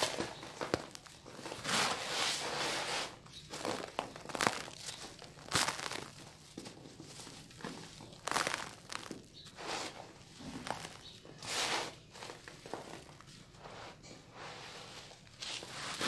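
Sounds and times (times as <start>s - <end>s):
trickling grit: 0.0s - 16.0s
hands crumbling dry block: 3.4s - 11.2s.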